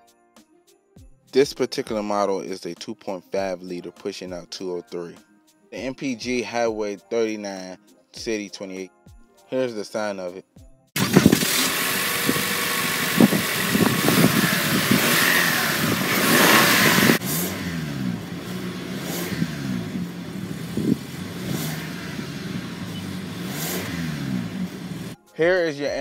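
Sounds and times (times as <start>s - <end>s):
car engine running: 11.0s - 25.2s.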